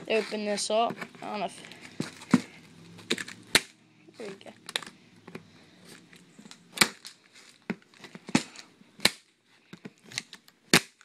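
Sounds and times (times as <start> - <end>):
cardboard snapping and crackling: 1.7 - 3.8, 6.4 - 9.3, 9.9 - 11.0.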